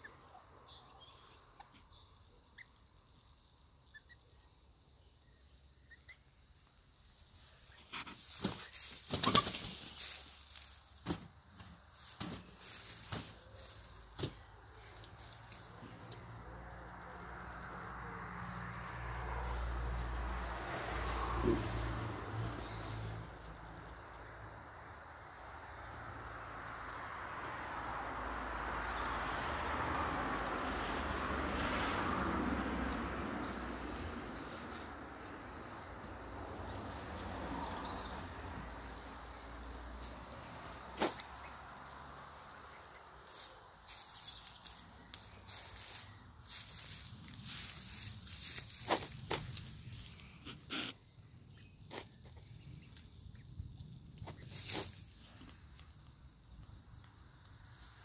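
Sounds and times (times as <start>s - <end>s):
chickens scratching in straw: 7.0s - 16.6s, 19.8s - 24.0s, 31.1s - 51.0s, 54.1s - 56.1s, 57.5s - 58.0s
vehicle passing: 8.2s - 51.6s.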